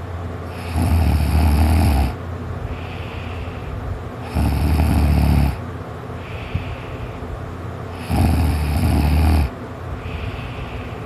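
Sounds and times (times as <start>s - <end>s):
person snoring: 0.5s - 2.2s, 4.2s - 5.6s, 7.9s - 10.7s
quiet breathing: 2.6s - 11.0s.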